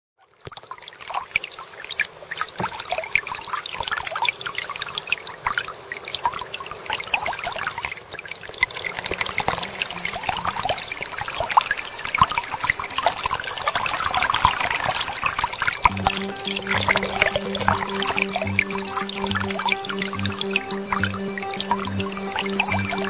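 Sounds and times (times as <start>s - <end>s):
water splashing and trickling: 0.2s - 23.0s.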